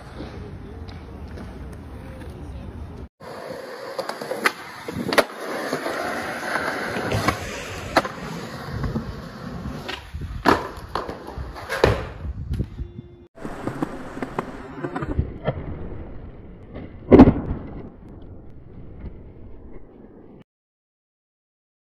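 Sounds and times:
skateboard wheels rolling on concrete: 0:00.0 - 0:20.4
skateboard clacking on ground: 0:13.4 - 0:15.2.

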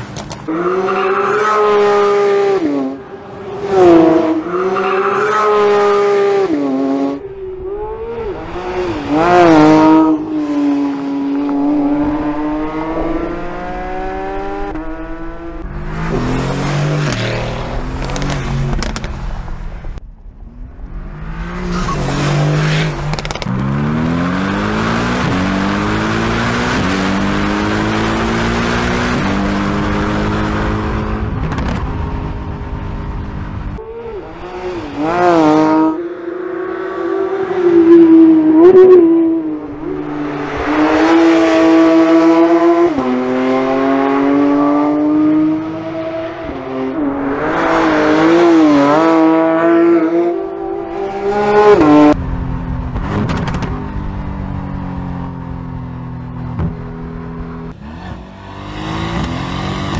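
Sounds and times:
sports car engine revving high: 0:03.6 - 0:17.2, 0:23.2 - 0:32.6, 0:34.2 - 0:52.2, 0:57.6 - 0:59.9
lower sports car engine accelerating: 0:05.5 - 0:59.9.

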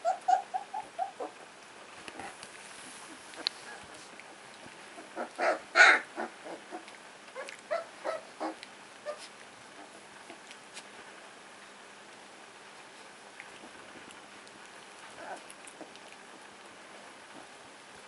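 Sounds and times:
puppies squeaking and yelping: 0:00.0 - 0:01.5, 0:05.0 - 0:10.5, 0:15.1 - 0:16.1.

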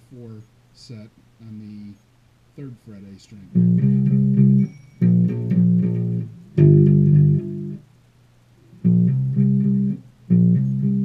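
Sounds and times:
plucked electric bass guitar: 0:03.5 - 0:07.8, 0:08.7 - 0:11.0.

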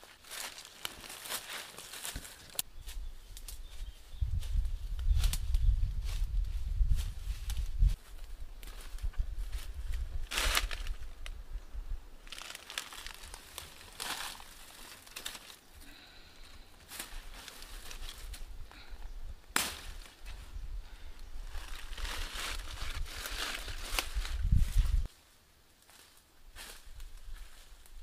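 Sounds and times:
dry leaves crunching underfoot: 0:00.0 - 0:03.7, 0:04.4 - 0:11.3, 0:12.2 - 0:15.7, 0:16.9 - 0:18.5, 0:21.4 - 0:25.1
sharp crack: 0:19.5 - 0:20.0.

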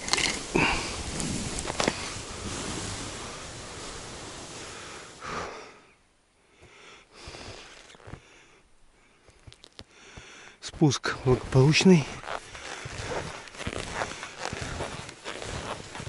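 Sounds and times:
faint scrapes and crunches: 0:00.0 - 0:05.0, 0:07.2 - 0:08.4, 0:09.1 - 0:09.9, 0:10.7 - 0:16.0
skis hissing over snow: 0:00.0 - 0:05.5, 0:07.2 - 0:08.2, 0:11.2 - 0:16.0.

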